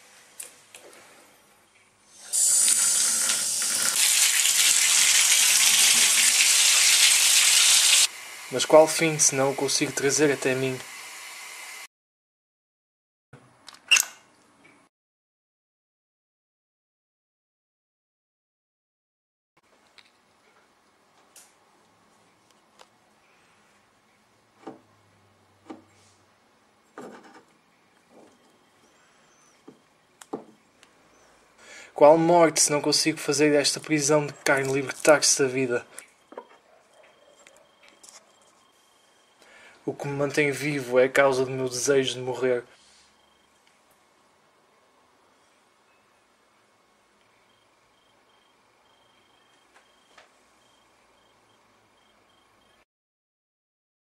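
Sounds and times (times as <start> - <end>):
tap water gushing into bathtub: 2.3 - 8.1
faint room hiss: 37.5 - 52.8.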